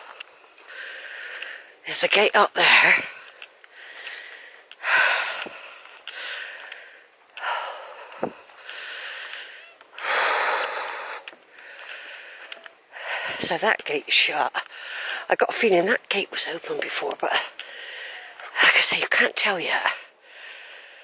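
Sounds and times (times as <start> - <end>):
man breathing heavily: 0.0 - 1.8, 2.9 - 13.6, 14.6 - 15.3, 17.5 - 18.6, 20.1 - 21.0.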